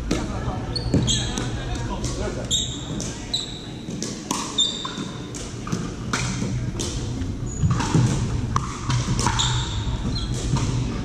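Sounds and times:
sneaker squeaks on hardwood: 0.7 - 1.5, 2.5 - 3.9, 4.5 - 5.2, 9.2 - 10.6
paddles hitting plastic ball: 3.9 - 7.1, 7.7 - 9.6.

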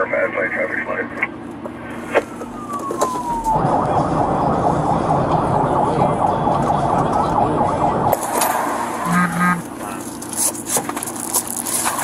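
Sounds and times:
road and engine noise: 0.0 - 12.0
police siren: 2.2 - 10.0
siren click: 2.4 - 8.2.

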